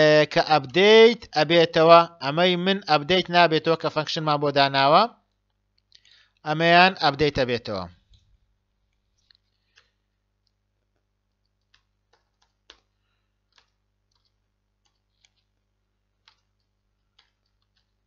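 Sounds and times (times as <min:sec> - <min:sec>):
faint mouse and keyboard clicks: 0:08.0 - 0:18.0.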